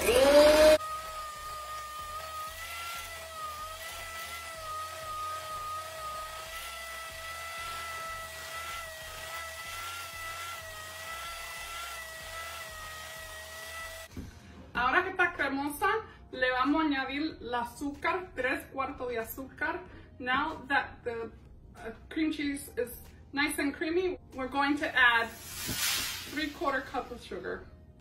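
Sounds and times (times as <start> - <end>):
electric hand mixer whining: 0.0 - 14.1, 25.3 - 27.0.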